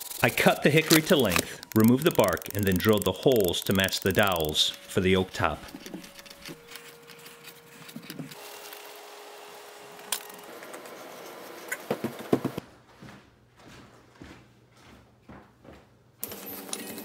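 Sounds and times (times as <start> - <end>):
wooden knocks and thuds: 11.9 - 12.6
footsteps: 11.9 - 16.0.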